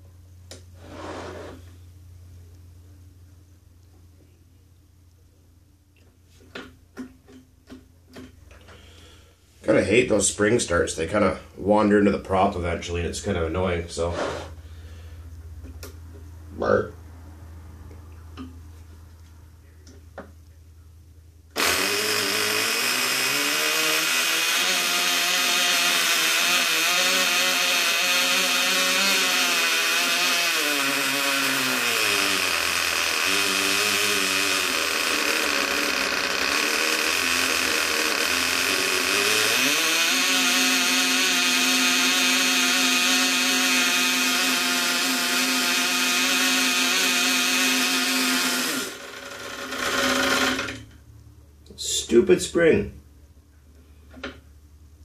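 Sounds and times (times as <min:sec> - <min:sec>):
tiny model engine running high speed: 0:21.6 - 0:50.7.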